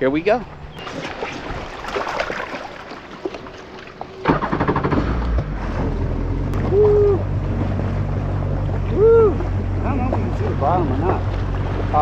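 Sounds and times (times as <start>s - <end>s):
jet ski engine running: 3.6s - 12.0s.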